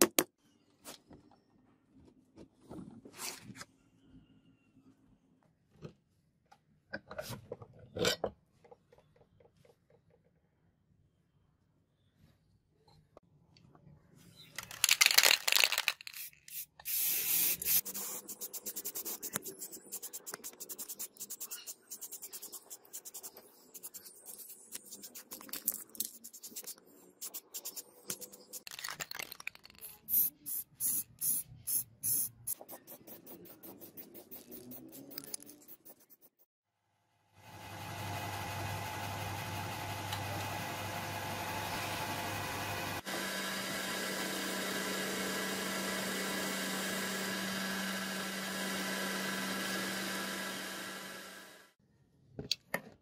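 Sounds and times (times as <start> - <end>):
spray-paint can hissing: 16.0 - 25.4, 26.2 - 28.6, 29.8 - 36.4.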